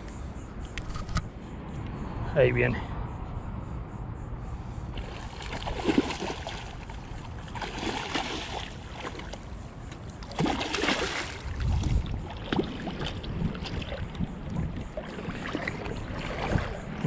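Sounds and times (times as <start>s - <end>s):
fish thrashing and splashing: 5.0s - 17.0s.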